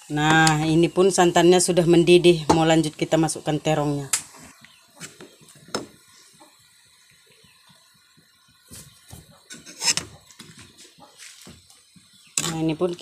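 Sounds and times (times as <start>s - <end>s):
ladle stirring in metal pot: 9.0s - 11.0s.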